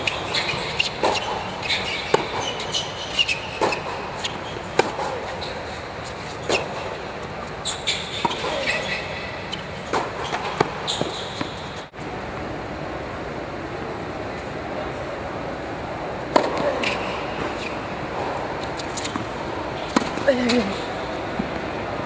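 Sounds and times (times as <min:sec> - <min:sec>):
racket striking tennis ball: 0:00.0 - 0:11.9, 0:16.3 - 0:21.8
shoes squeaking on court: 0:00.0 - 0:11.9, 0:16.3 - 0:22.0
tennis ball bouncing: 0:00.0 - 0:11.9, 0:16.2 - 0:21.8.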